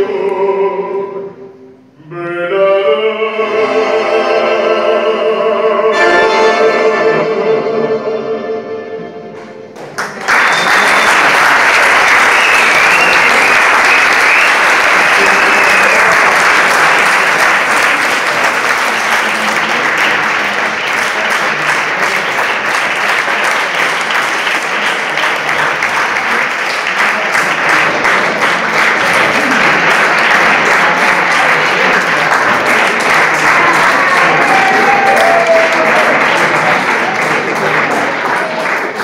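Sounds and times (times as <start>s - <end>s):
audience applauding: 9.8s - 39.0s.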